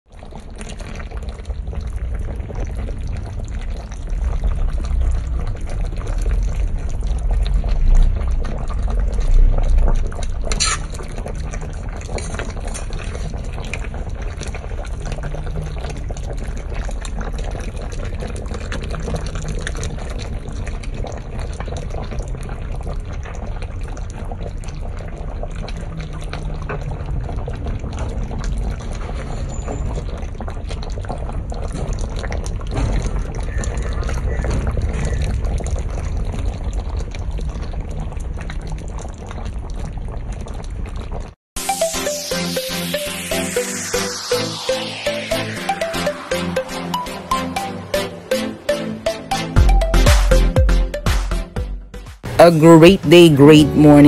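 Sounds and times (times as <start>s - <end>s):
stew bubbling in a pan: 0.1s - 41.4s.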